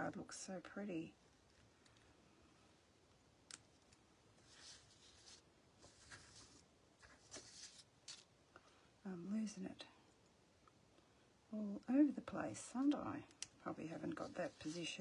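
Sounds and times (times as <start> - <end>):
rustling of cardstock pieces: 4.4 - 8.3, 14.1 - 15.0.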